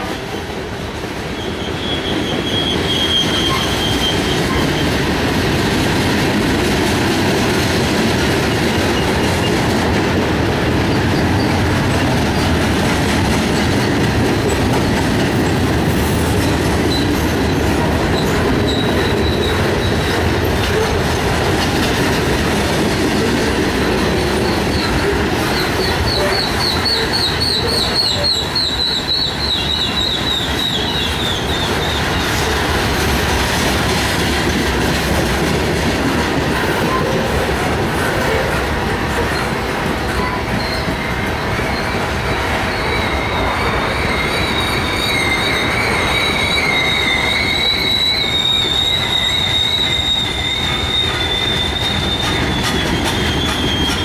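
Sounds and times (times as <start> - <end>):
train wheels rumbling on rails: 0.0 - 54.0
high wheel squeal: 1.3 - 5.0, 10.9 - 12.5, 13.6 - 21.1, 23.8 - 32.5, 39.2 - 54.0.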